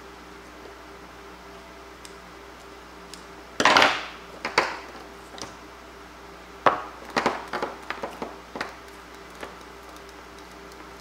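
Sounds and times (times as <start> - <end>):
clicks and rustles of handling: 7.1 - 10.9.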